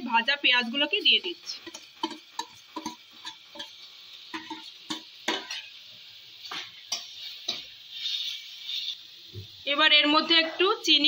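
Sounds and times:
faint sizzle: 0.0 - 11.0
metal spatula scraping a pan: 1.6 - 5.8, 6.4 - 9.1.

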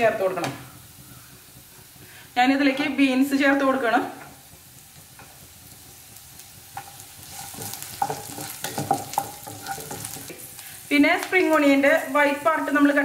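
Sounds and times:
vegetables sizzling in hot oil: 0.0 - 13.0
wooden spatula scraping pan: 6.8 - 10.5.

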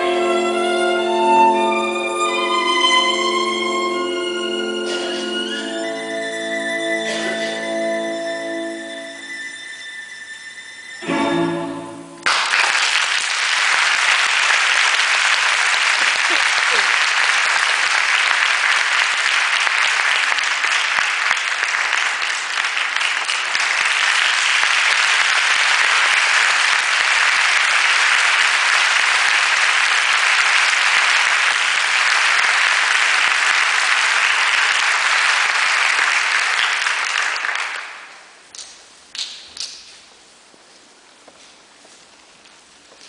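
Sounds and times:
audience applauding: 12.2 - 39.4.

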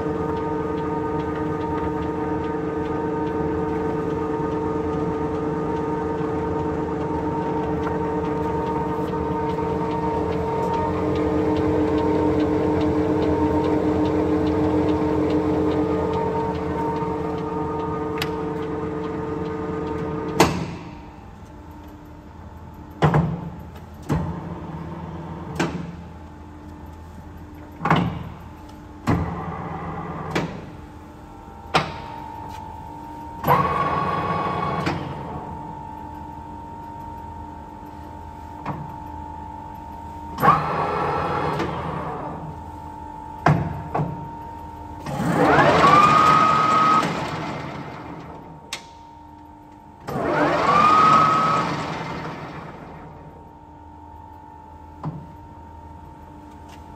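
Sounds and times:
lathe motor running: 0.0 - 20.4, 45.0 - 48.5, 50.0 - 53.4.

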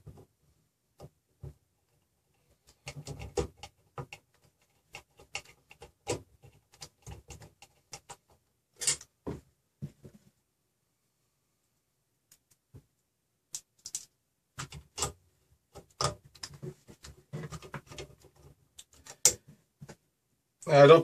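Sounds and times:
small metal and plastic clicks: 13.5 - 16.6, 17.5 - 19.4.

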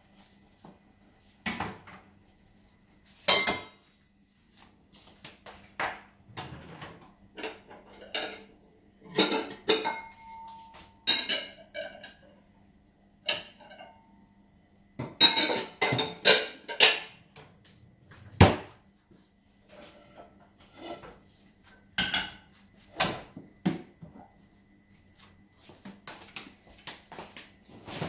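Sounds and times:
faint steady hum: 0.0 - 28.0
dishes and utensils clattering: 3.2 - 3.8, 6.4 - 12.4, 13.2 - 14.1, 15.0 - 17.5, 22.0 - 23.3.

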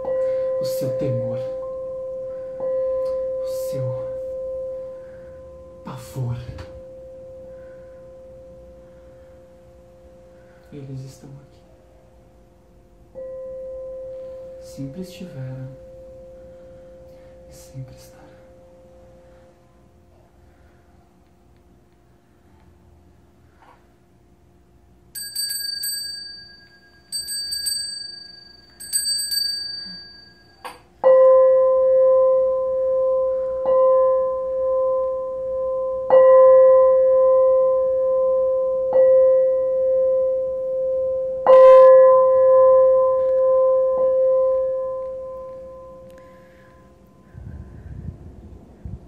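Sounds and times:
high metallic rings: 25.1 - 31.7.

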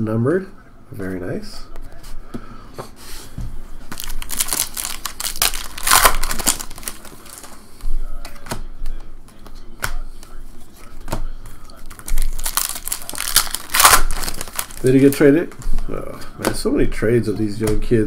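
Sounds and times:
foil wrappers crinkling: 3.9 - 7.8, 11.5 - 16.0.

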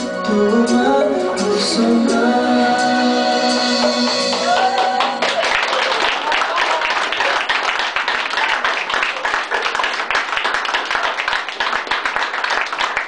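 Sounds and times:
crowd clapping: 3.9 - 13.0.

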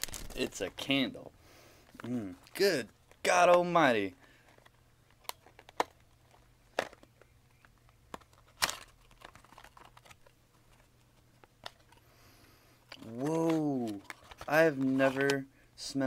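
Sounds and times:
wrapping crinkling: 0.0 - 0.9, 8.2 - 12.0, 12.9 - 15.4.

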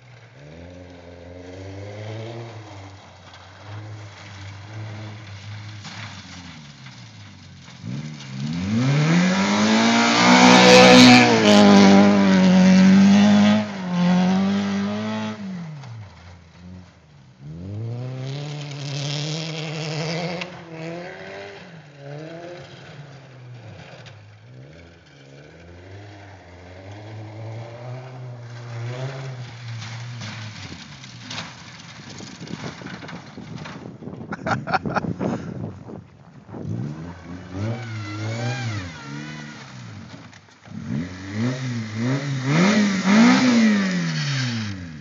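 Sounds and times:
car engine revving: 0.4 - 32.3, 36.5 - 45.0.

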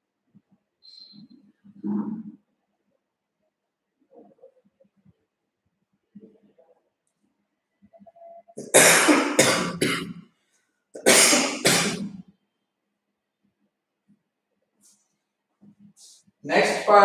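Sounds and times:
person coughing loudly: 8.6 - 10.2, 11.0 - 12.1.

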